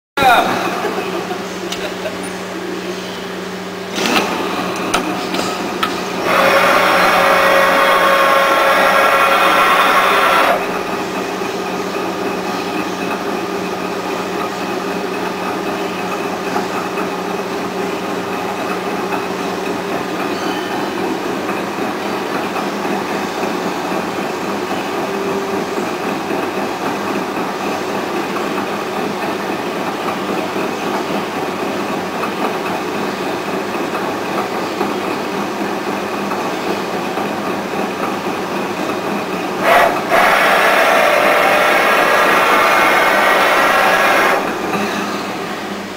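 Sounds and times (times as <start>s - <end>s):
lathe running: 0.4s - 45.9s
loud steady burst of noise: 6.1s - 12.1s, 39.6s - 45.9s.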